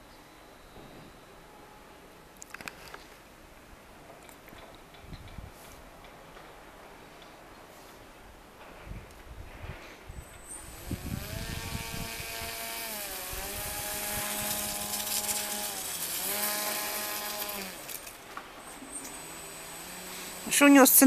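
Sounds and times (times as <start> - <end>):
model sled motor buzzing whine: 10.4 - 20.9.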